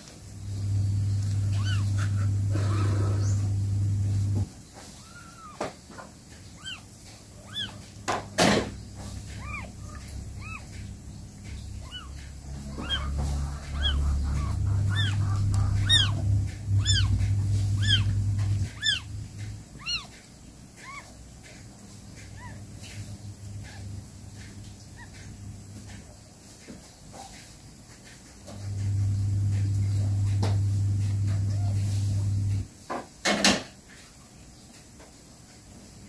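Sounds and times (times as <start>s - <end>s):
kitten mewing: 1.3s - 3.5s, 6.6s - 21.6s.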